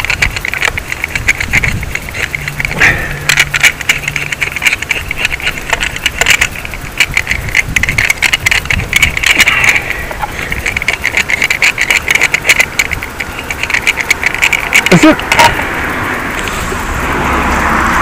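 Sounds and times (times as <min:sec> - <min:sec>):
fish scaler scratchy clicks: 0:00.0 - 0:15.6.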